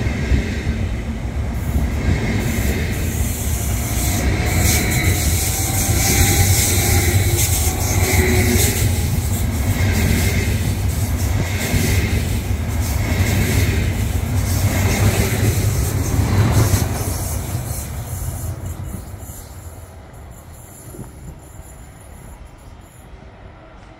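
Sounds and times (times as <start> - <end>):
electric train passing: 0.0 - 23.9
wheel-on-rail noise: 1.4 - 19.8.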